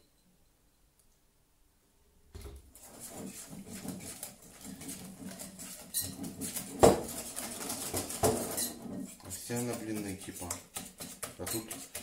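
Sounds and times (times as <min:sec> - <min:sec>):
spoon stirring batter: 0:02.7 - 0:12.0.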